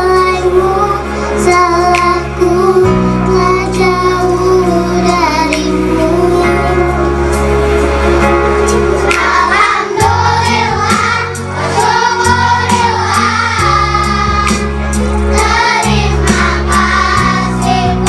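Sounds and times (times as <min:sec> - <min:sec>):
instrumental accompaniment: 0:00.0 - 0:18.0
children singing: 0:09.0 - 0:18.0.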